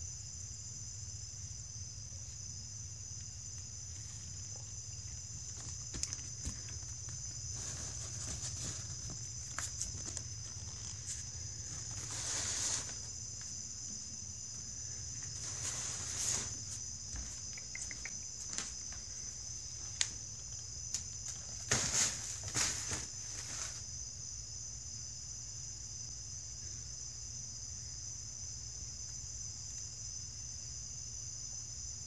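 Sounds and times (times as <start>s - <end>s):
nylon tunnel rustling and crinkling: 3.8s - 13.4s, 15.1s - 17.1s, 21.1s - 24.0s
light clicks and taps: 17.2s - 18.7s.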